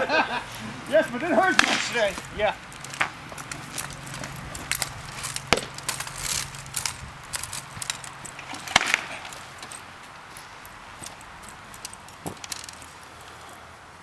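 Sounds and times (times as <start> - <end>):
armour clattering and rustling: 0.0 - 13.7
swords striking shields: 1.0 - 2.3, 5.5 - 5.9, 8.4 - 9.3.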